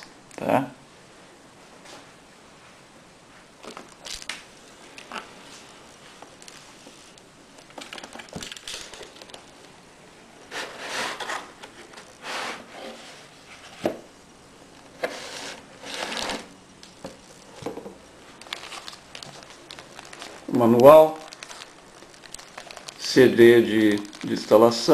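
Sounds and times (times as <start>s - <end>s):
plastic wrapping crinkling: 3.6s - 9.8s, 15.6s - 24.9s.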